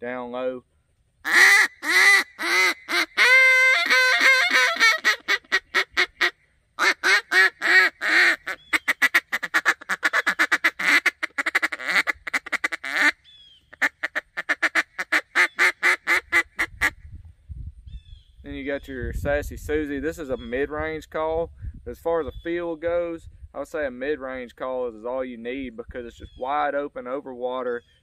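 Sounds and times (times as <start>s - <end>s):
duck call quacks: 1.2s - 17.0s.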